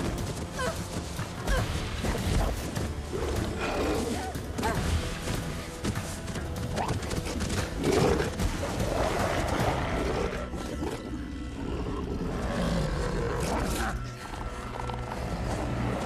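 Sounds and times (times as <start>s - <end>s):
dramatic orchestral music: 0.0s - 16.0s
wolves growling: 6.8s - 16.0s.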